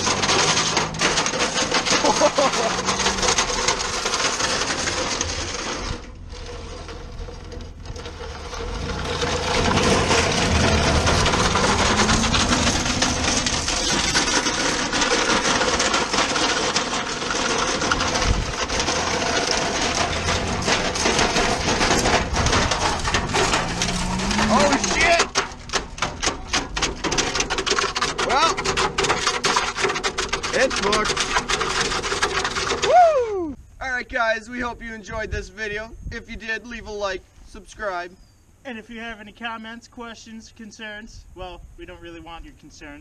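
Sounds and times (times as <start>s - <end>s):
microwave scraping over gravel: 0.0s - 33.0s
van engine: 0.0s - 33.5s
road noise: 0.0s - 33.8s.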